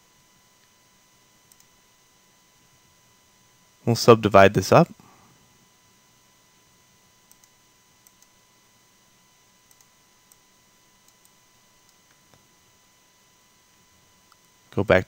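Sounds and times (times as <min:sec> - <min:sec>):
faint steady hum: 0:00.0 - 0:15.0
computer mouse clicks: 0:01.5 - 0:01.7, 0:07.2 - 0:08.4, 0:09.7 - 0:10.4, 0:11.0 - 0:12.2.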